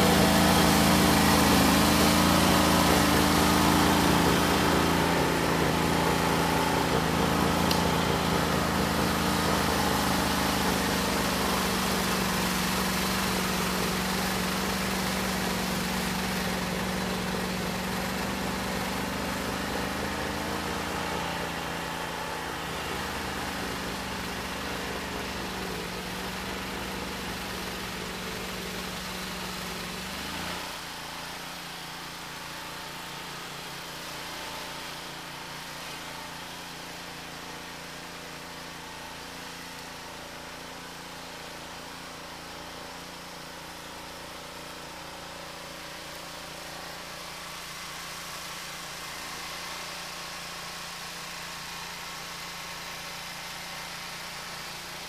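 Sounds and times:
snow blower engine running: 0.0s - 55.0s.

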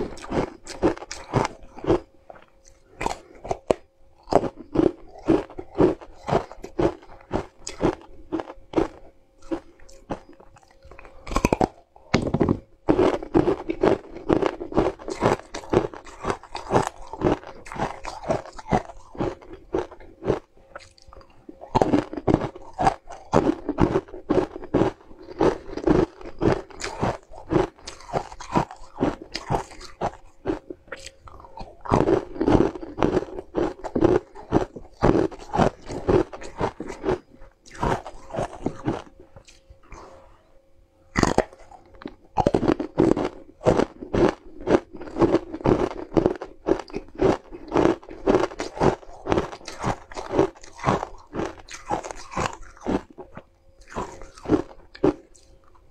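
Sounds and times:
crunching and chewing ice: 0.0s - 55.9s.

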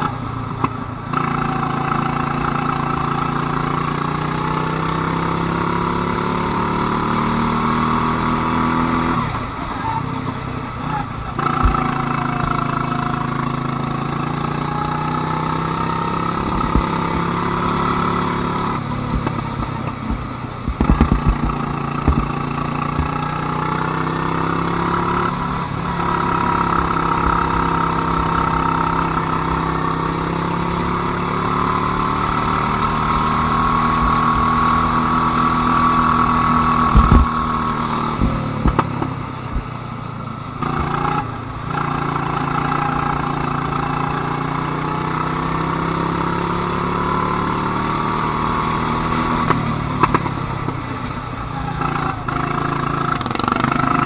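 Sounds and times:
go-kart engine running: 0.0s - 54.0s
sharp knocks: 19.1s - 23.2s, 36.9s - 37.4s.

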